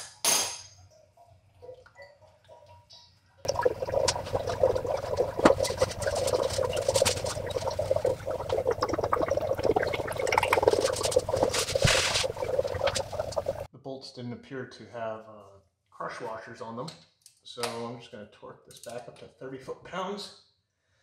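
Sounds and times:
fluid pouring into drain pan: 3.5 - 13.7.

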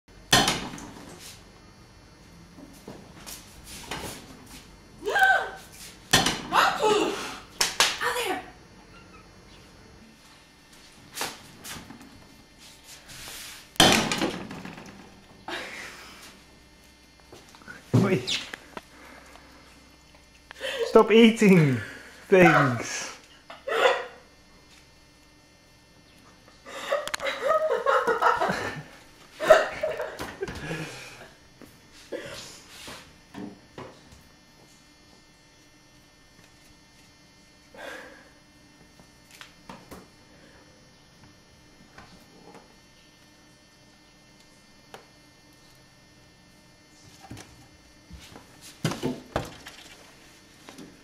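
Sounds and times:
person making vocal sounds: 6.5 - 7.5.

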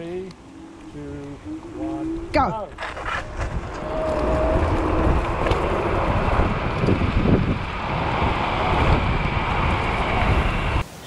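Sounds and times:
short whine: 0.0 - 7.0
wind rushing over microphone: 0.0 - 10.8
electric scooters accelerating: 0.0 - 10.9.

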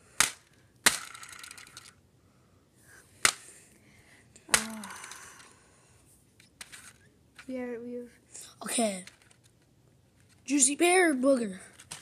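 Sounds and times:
plastic spinner clicking and rattling: 0.2 - 2.0, 8.8 - 9.6, 11.6 - 12.0.

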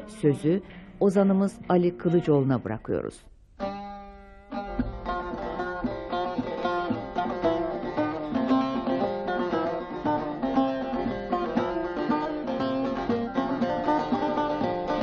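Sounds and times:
long-necked lute plucked: 3.6 - 15.0.

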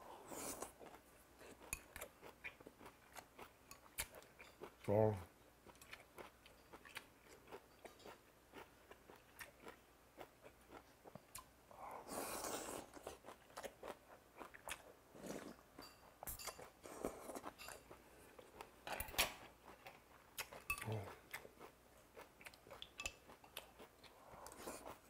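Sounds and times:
slurping broth: 12.0 - 13.1.

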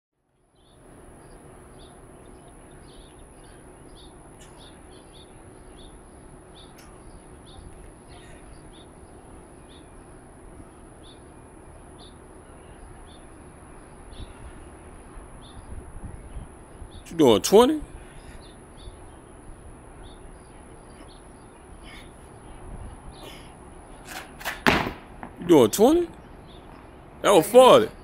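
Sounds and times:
birds chirping: 0.6 - 24.1, 25.0 - 28.0
low background hiss: 25.0 - 28.0.

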